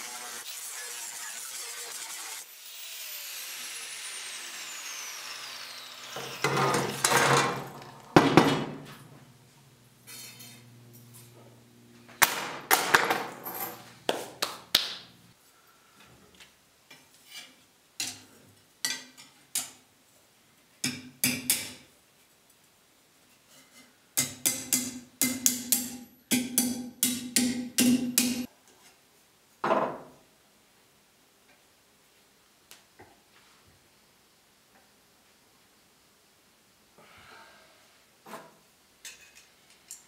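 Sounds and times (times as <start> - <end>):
power tool motor winding down: 2.0 - 7.6.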